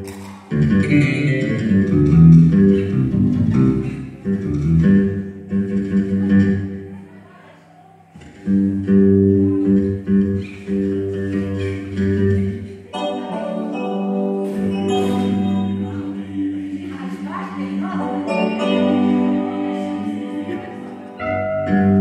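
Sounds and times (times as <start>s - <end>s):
song with singing voice: 12.7s - 22.0s.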